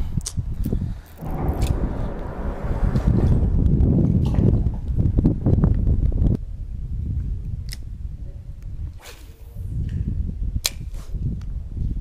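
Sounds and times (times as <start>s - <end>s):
steady low rumble: 1.2s - 7.0s.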